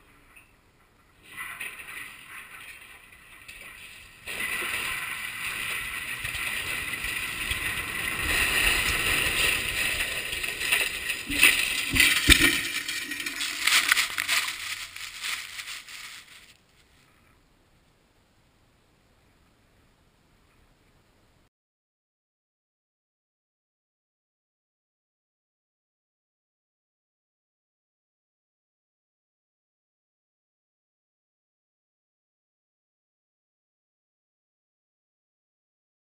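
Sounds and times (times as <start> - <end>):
heavy steel crashes: 1.2 - 16.2
rushing rattling of falling tower: 3.8 - 16.5.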